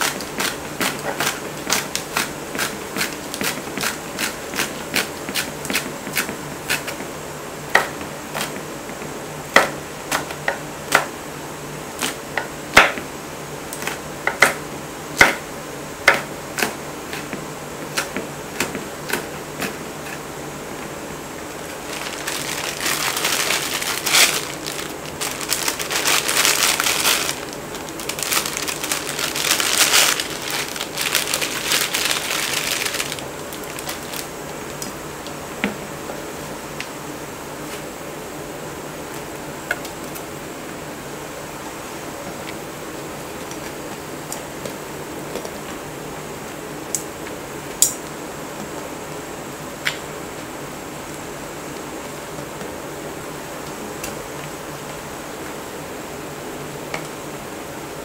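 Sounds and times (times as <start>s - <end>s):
knife chopping on wooden board: 15.2s - 15.4s.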